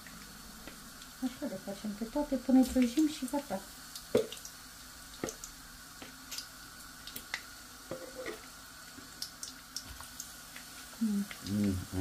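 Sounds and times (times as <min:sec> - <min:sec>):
potato slices frying in oil: 0:00.0 - 0:12.0
spattering oil pops: 0:03.9 - 0:08.5.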